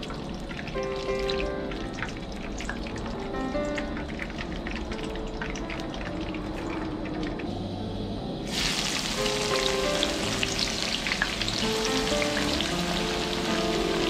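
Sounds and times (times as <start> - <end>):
oil sizzling in a wok: 7.4 - 14.0.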